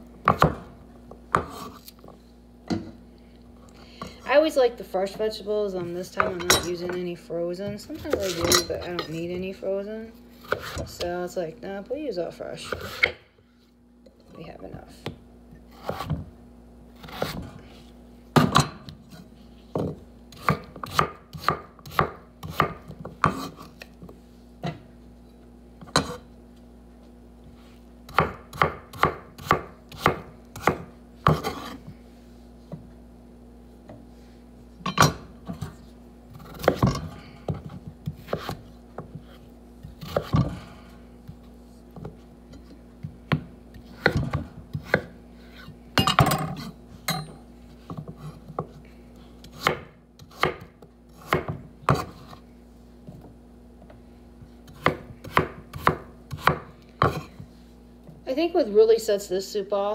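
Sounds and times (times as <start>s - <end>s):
knife chopping on wooden board: 0.2s - 0.7s, 1.3s - 1.9s, 15.8s - 16.3s, 19.8s - 23.9s, 28.1s - 31.8s, 36.4s - 40.6s, 43.0s - 45.2s, 49.4s - 52.4s, 54.6s - 57.4s.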